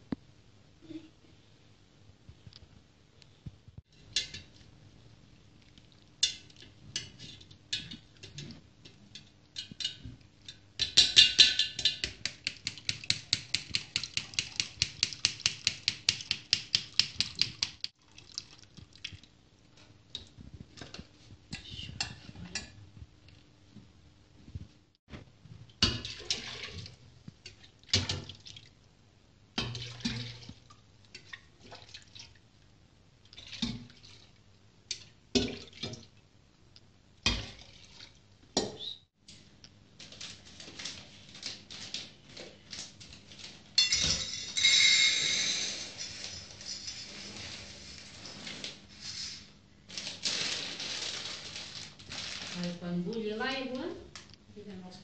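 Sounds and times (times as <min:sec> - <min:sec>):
metal pots clanking: 0:06.2 - 0:12.1, 0:43.8 - 0:47.3.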